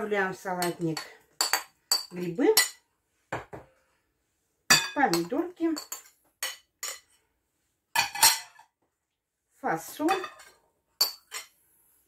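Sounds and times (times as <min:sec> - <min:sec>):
spoon scraping ceramic plates: 0:04.7 - 0:07.2, 0:08.0 - 0:08.7, 0:09.9 - 0:11.6.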